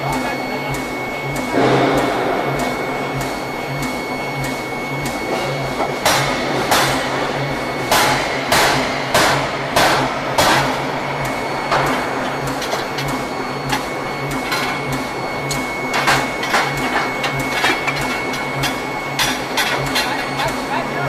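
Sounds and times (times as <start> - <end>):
low pulsing hammer beat: 0.0 - 19.9
power hammer striking hot steel: 5.3 - 13.1.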